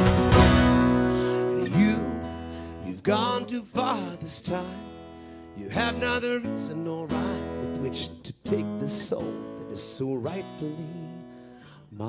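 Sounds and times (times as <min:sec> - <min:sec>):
folk-rock band playing: 0:00.0 - 0:02.0
acoustic guitar strumming: 0:00.0 - 0:11.8.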